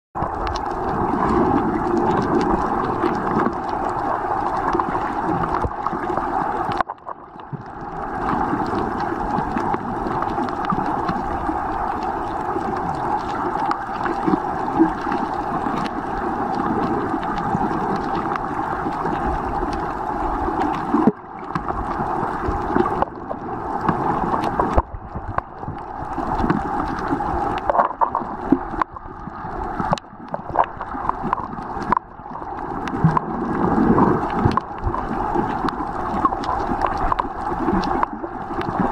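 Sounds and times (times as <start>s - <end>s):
muffled underwater water rush: 0.2s - 38.9s.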